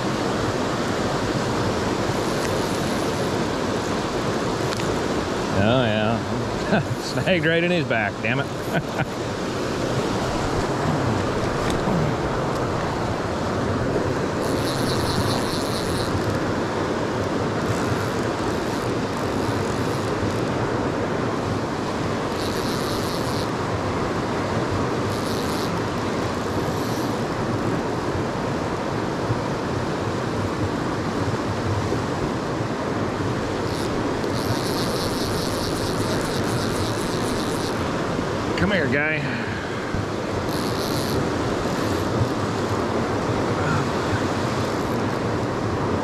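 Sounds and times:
river rushing over rocks: 0:00.0 - 0:46.0
fishing reel rapid clicking: 0:02.0 - 0:03.4, 0:14.4 - 0:16.4, 0:17.6 - 0:20.4, 0:22.3 - 0:23.6, 0:25.1 - 0:25.8, 0:26.5 - 0:27.2, 0:33.6 - 0:38.0, 0:40.3 - 0:42.7.

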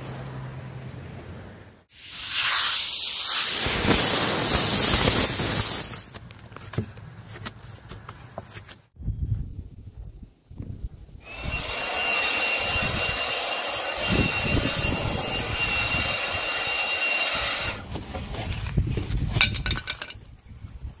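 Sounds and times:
handheld blower whining: 0:11.2 - 0:17.9
knocks and scrapes: 0:17.9 - 0:20.3.

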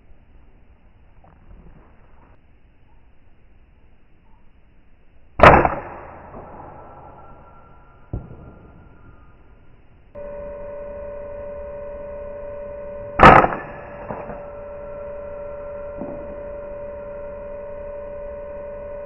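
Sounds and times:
steady high hum: 0:00.0 - 0:19.0
air rifle shot: 0:05.4 - 0:07.1, 0:13.2 - 0:14.4.

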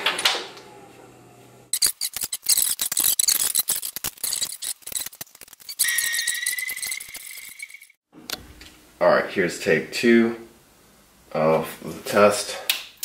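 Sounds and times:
high-pitched tone: 0:05.8 - 0:07.9.

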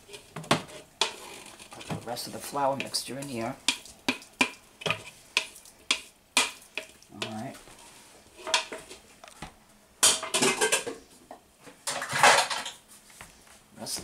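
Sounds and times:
clatter of dishes and utensils: 0:10.0 - 0:11.0, 0:11.8 - 0:12.8.

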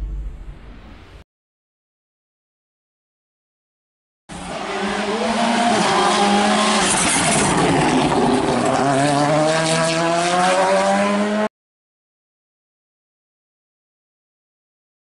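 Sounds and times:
rally car engine revving: 0:04.3 - 0:11.5.

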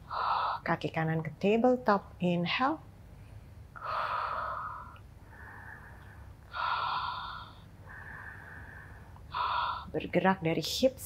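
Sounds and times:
woman breathing loudly: 0:00.0 - 0:00.6, 0:03.8 - 0:09.9.

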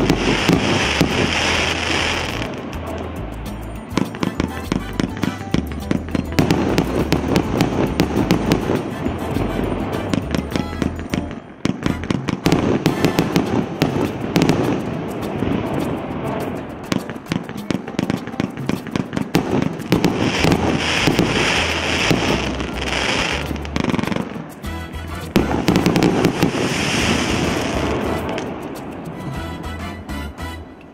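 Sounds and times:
fireworks firing rapid shots: 0:00.0 - 0:02.9, 0:06.4 - 0:24.5, 0:25.3 - 0:28.9.

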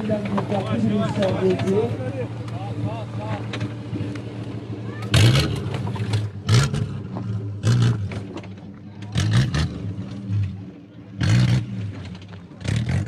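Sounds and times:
engine revving hard: 0:05.0 - 0:08.3, 0:09.1 - 0:10.6, 0:11.2 - 0:13.0.

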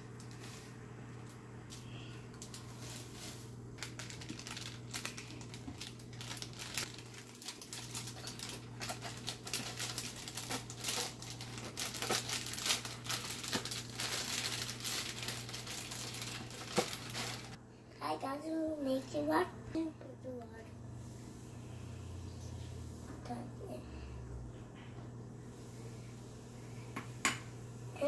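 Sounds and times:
plastic bag crinkling: 0:02.3 - 0:17.6.

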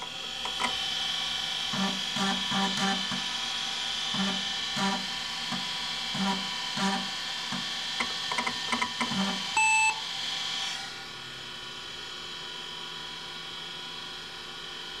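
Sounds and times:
hard drive seeking chirps: 0:08.7 - 0:10.0.

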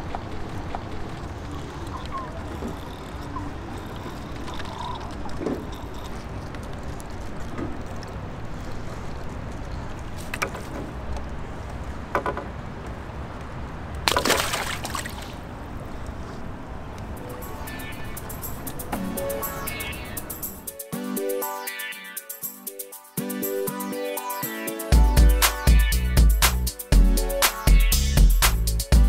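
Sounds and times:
water splashing and sloshing: 0:13.9 - 0:15.8.

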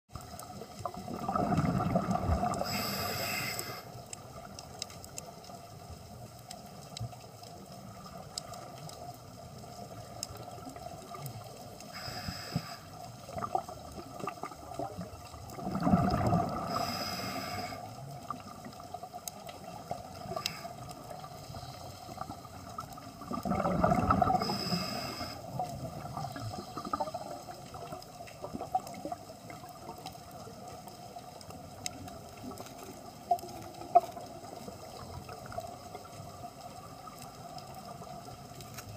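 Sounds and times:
exhaled bubbles gurgling: 0:00.1 - 0:05.2, 0:07.8 - 0:38.9
regulator inhale hiss: 0:02.4 - 0:04.1, 0:11.8 - 0:13.3, 0:16.5 - 0:18.1, 0:20.2 - 0:22.8, 0:24.2 - 0:27.6.

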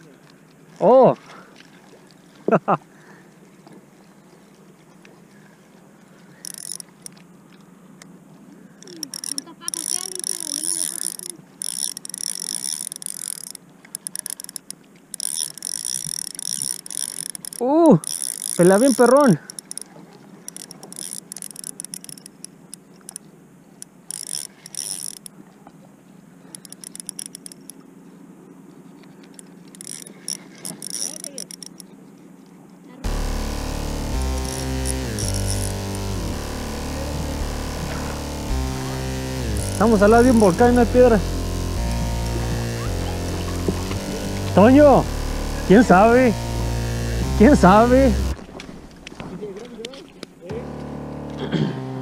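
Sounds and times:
spinning reel cranking: 0:06.4 - 0:07.1, 0:08.8 - 0:19.9, 0:20.5 - 0:22.5, 0:23.8 - 0:25.3, 0:26.5 - 0:27.8, 0:29.4 - 0:31.8, 0:33.0 - 0:48.4
reel click: 0:06.4 - 0:07.2, 0:08.8 - 0:23.2, 0:23.8 - 0:25.3, 0:26.5 - 0:27.9, 0:29.2 - 0:31.9, 0:33.1 - 0:51.4.

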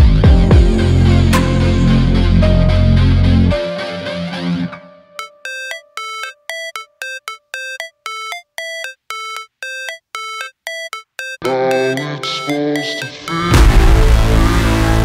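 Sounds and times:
background music: 0:00.0 - 0:06.9.

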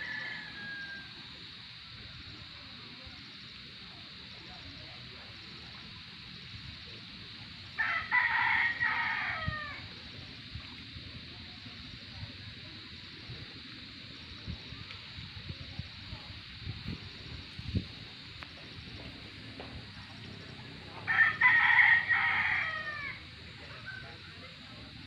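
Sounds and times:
rooster crowing: 0:00.0 - 0:01.4, 0:07.8 - 0:09.9, 0:21.1 - 0:24.3
steady hiss: 0:00.0 - 0:25.0.

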